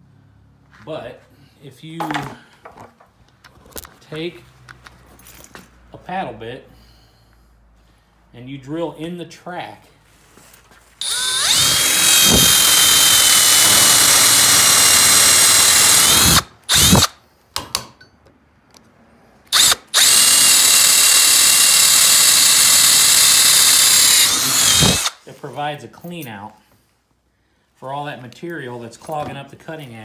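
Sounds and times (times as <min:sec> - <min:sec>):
power drill whining: 0:11.0 - 0:17.1, 0:19.5 - 0:25.2.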